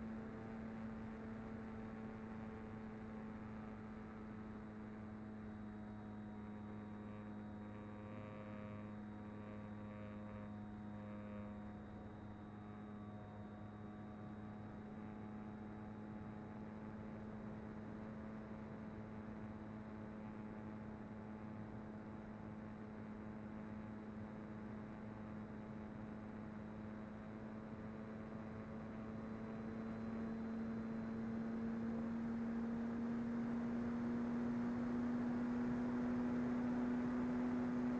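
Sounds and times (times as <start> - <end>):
electric motor and propeller humming: 2.2 - 18.2.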